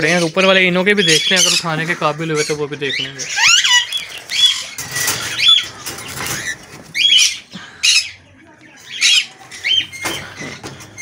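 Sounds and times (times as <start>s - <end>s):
cockatiels squawking: 0.0s - 8.2s, 8.8s - 11.0s
rustling and wing flapping: 4.0s - 7.0s.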